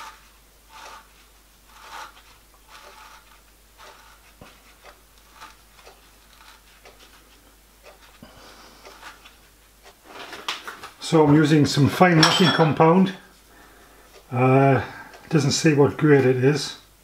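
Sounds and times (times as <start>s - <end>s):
faint plastic scrapes and rustles: 0.0s - 11.0s.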